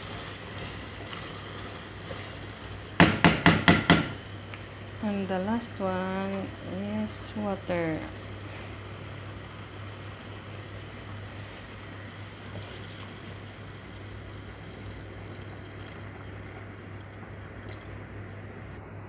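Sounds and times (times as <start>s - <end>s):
curry bubbling in a pot: 0.0s - 3.4s, 8.1s - 18.9s
steady low hum: 0.0s - 19.0s.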